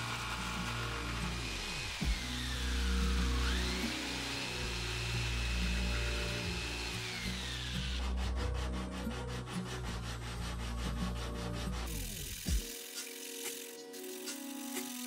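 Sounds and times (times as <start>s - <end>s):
jigsaw motor whine: 0.0s - 8.2s, 11.8s - 15.0s
sandpaper scratching strokes: 0.0s - 15.0s.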